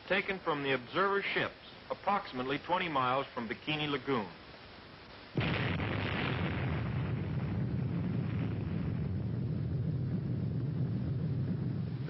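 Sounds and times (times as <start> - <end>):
explosion blast: 5.4 - 12.0
heavy rumble: 5.4 - 12.0.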